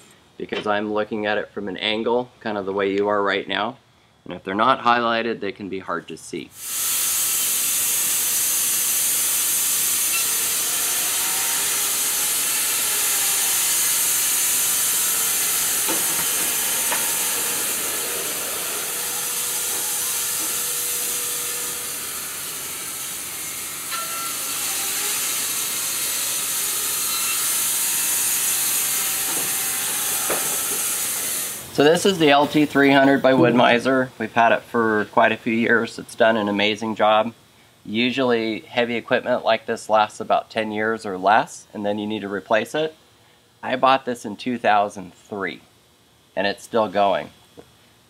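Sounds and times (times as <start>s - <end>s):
band saw blade hissing in wood: 6.6s - 31.8s.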